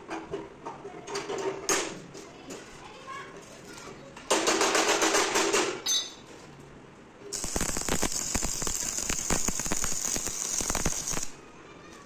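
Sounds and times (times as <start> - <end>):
arc welding sizzle and crackle: 7.2 - 11.4.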